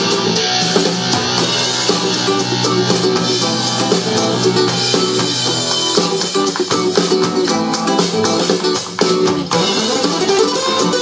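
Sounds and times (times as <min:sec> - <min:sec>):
music with drums and guitar: 0:00.0 - 0:11.0.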